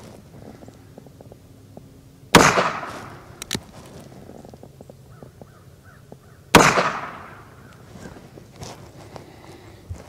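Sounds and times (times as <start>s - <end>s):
revolver gunshot: 2.3s - 3.3s, 6.5s - 7.5s
revolver clicks: 3.4s - 3.7s.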